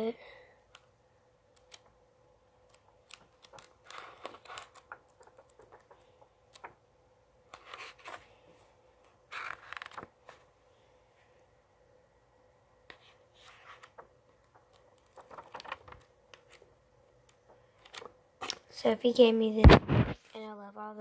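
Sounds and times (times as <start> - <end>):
book pages turning: 1.5 - 2.0, 2.6 - 6.8, 7.5 - 8.4, 9.0 - 10.5, 12.8 - 18.7.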